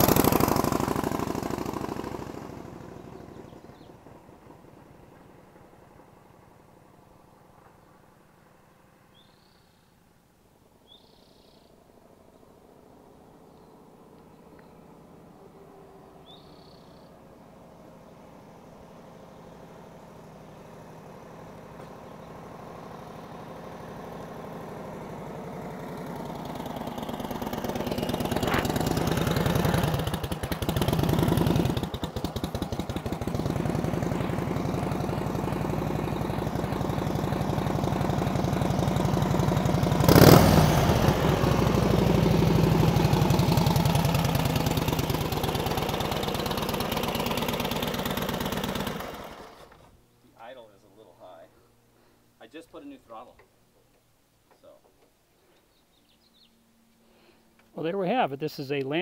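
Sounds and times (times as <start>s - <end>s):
loud engine burst: 0.0s - 3.4s, 23.6s - 49.9s
motorcycle engine idling: 0.0s - 8.1s, 10.8s - 50.0s.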